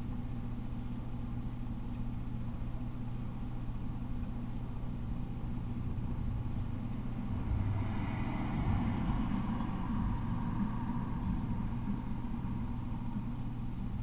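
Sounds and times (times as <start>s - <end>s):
vehicle engine hum: 5.5s - 14.0s.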